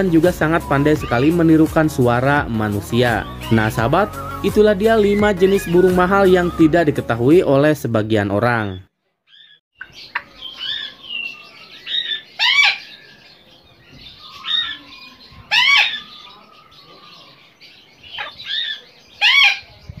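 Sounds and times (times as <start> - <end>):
parrot calling: 0.0 - 1.7, 2.9 - 6.6, 8.6 - 13.4, 14.0 - 19.8.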